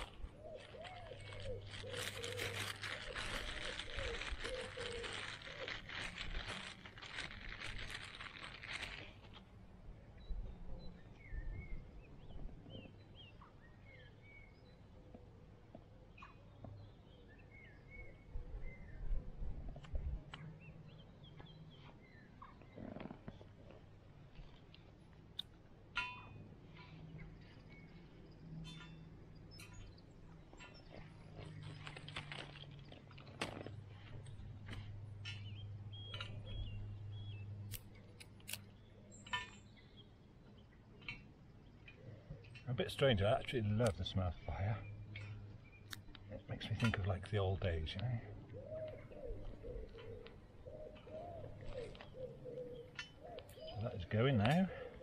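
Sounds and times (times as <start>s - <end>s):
small birds chirping: 0.0s - 25.6s, 26.3s - 55.0s
small sticks snapping and clicking: 37.7s - 38.7s, 45.2s - 47.0s.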